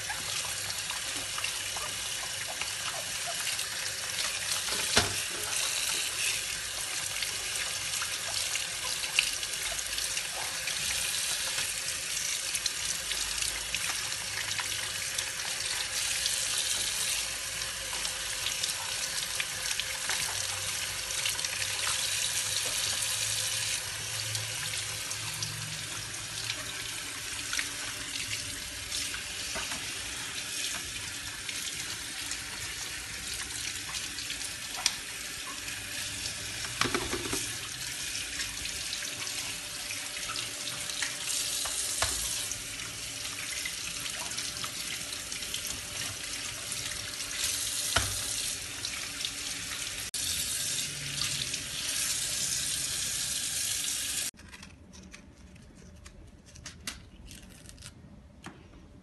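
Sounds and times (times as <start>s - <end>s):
tap running into sink: 4.6s - 5.8s, 36.6s - 37.6s, 41.6s - 42.4s, 47.9s - 48.4s.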